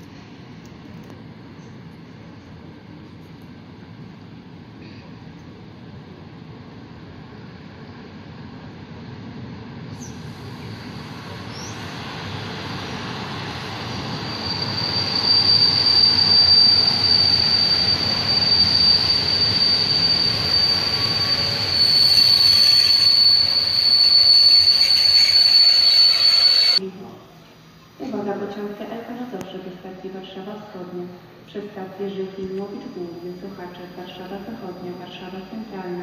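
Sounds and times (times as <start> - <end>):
train rumble: 0.0 - 26.8
high-pitched wheel squeal: 13.8 - 26.8.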